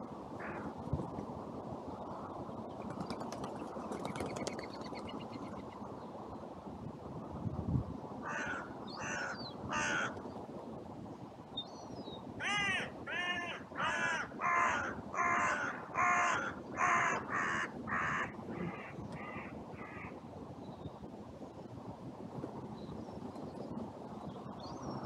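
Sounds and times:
crows cawing: 0.4s - 0.7s, 8.2s - 10.2s, 12.4s - 20.2s
wind rushing: 12.3s - 22.7s.

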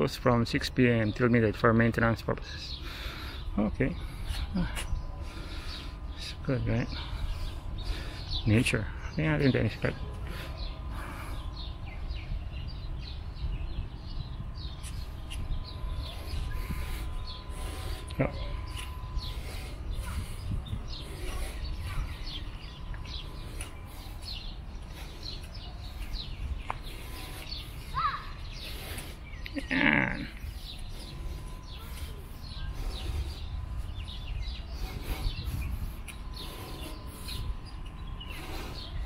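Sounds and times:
small birds chirping: 0.0s - 39.0s
low rumble: 9.8s - 27.9s.

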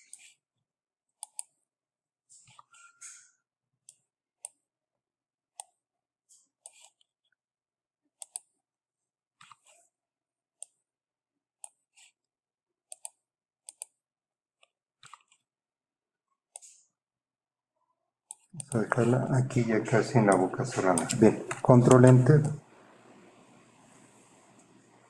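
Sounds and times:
mouse and keyboard clicking: 1.2s - 1.5s, 8.2s - 8.5s, 12.9s - 14.0s, 15.0s - 15.4s, 18.3s - 18.9s, 20.2s - 22.6s.

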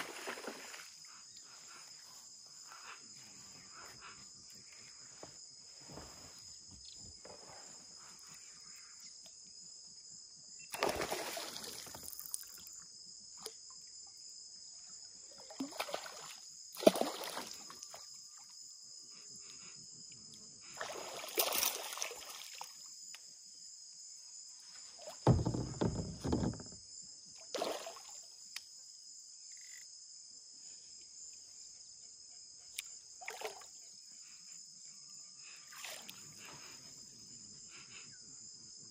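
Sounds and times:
insects chirring: 0.0s - 38.9s
kayak splashing and knocking: 25.0s - 26.8s.

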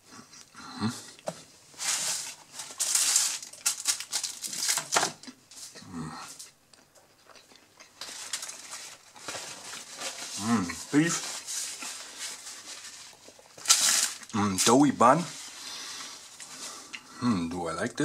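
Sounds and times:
paper wrapper crinkling: 1.8s - 5.7s, 7.8s - 16.9s.

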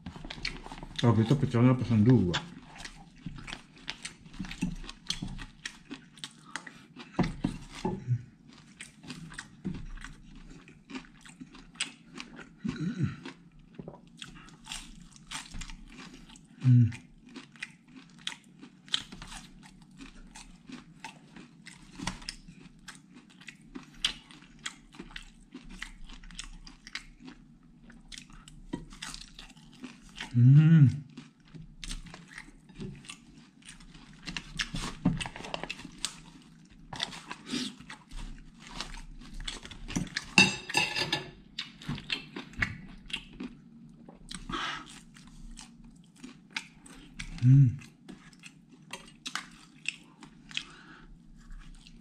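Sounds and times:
crunching of crispy food: 0.1s - 40.5s
short low voice sounds: 16.6s - 17.0s, 30.4s - 31.1s, 47.4s - 47.8s.

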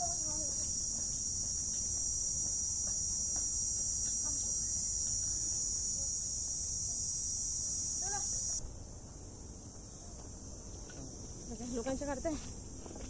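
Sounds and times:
insects shrilling: 0.0s - 8.6s.

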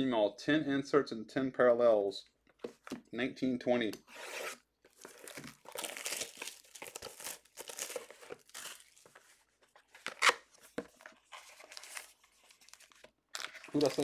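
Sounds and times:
cardboard box tearing and crinkling: 4.2s - 9.2s.

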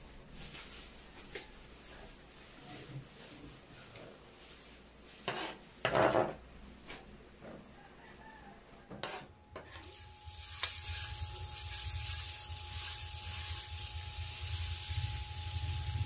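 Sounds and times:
low steady hum: 9.3s - 16.0s
food sizzling in frying pan: 9.8s - 16.0s.

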